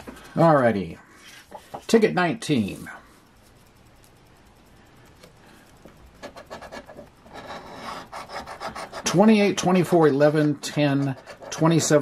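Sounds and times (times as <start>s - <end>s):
coin scratching lottery ticket: 6.2s - 12.0s.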